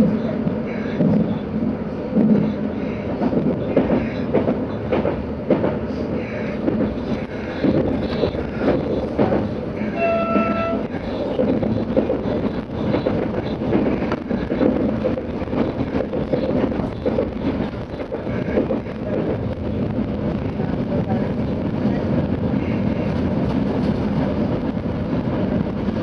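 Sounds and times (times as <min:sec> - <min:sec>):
train wheels rumbling on rails: 0:00.0 - 0:26.0
train horn tone: 0:09.9 - 0:10.9.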